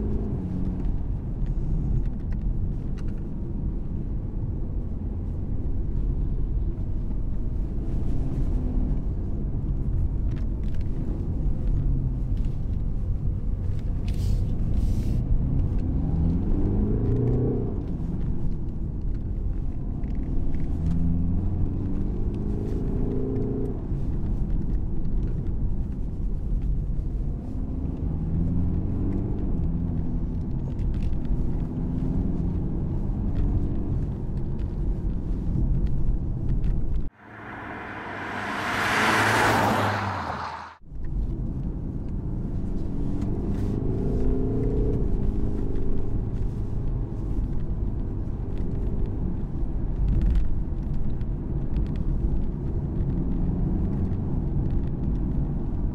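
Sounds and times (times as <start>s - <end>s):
road noise rumble: 0.0s - 55.9s
car diesel engine accelerating: 37.2s - 40.8s.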